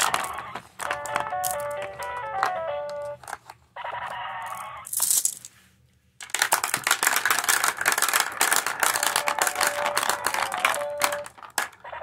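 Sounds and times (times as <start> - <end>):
marbles clattering down ramps: 4.5 - 5.4, 6.2 - 11.8.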